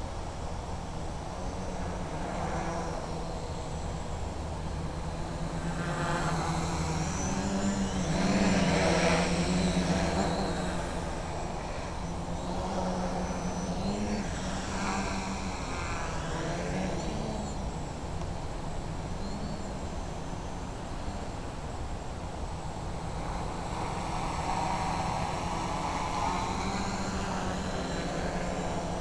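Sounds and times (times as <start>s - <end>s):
quadcopter propellers buzzing: 0.0s - 29.0s.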